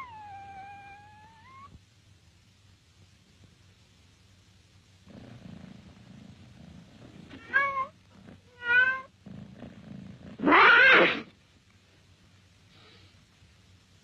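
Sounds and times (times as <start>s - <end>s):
cat purring: 5.0s - 11.3s
cat meowing: 7.4s - 7.9s, 8.5s - 9.1s, 10.4s - 11.3s.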